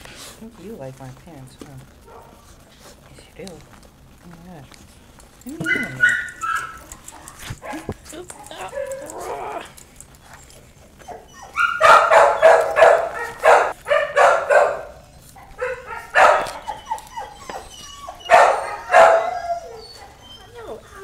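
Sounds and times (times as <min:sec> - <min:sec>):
puppy barking and yipping: 0:05.6 - 0:21.0.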